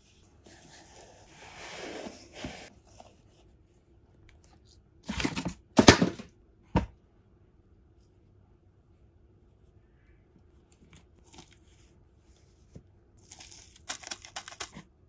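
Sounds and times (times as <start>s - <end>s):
packaging crinkling: 13.2s - 14.9s.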